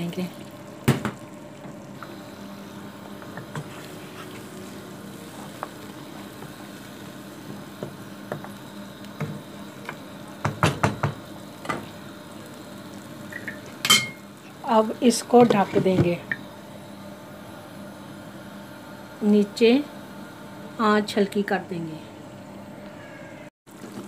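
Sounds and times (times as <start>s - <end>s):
stew bubbling in a wok: 0.0s - 17.0s, 23.7s - 24.0s.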